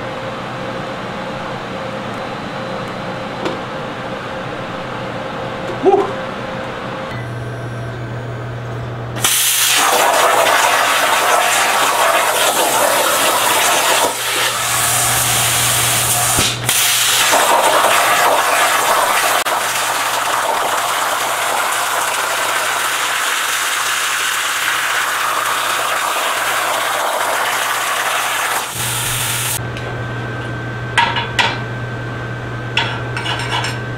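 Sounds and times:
plasma torch hissing: 9.2s - 18.4s, 25.3s - 29.6s.

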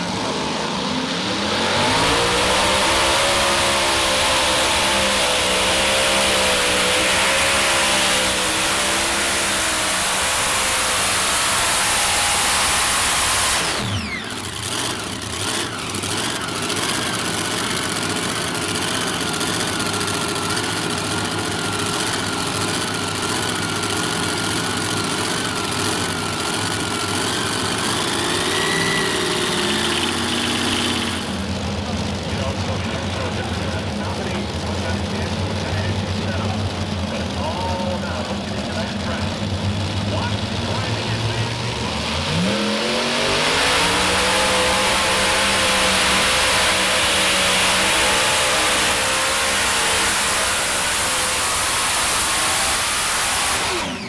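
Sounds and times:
engine winding down: 0.0s - 54.0s
tractor engines at full power: 0.0s - 54.0s
low steady engine noise: 8.4s - 43.1s.

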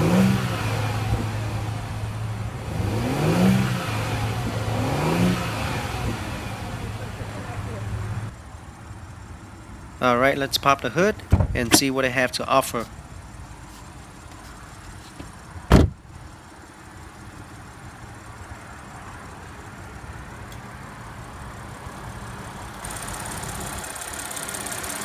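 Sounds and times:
car engine idling: 0.0s - 25.0s
loud clunk: 15.7s - 16.0s.

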